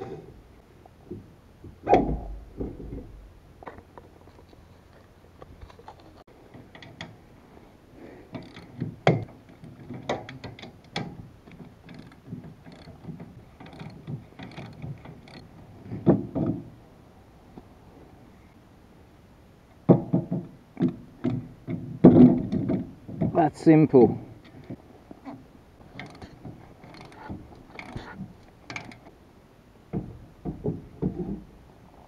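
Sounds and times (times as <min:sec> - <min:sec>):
metallic clicks and knocks: 0:08.3 - 0:16.7, 0:24.4 - 0:29.1.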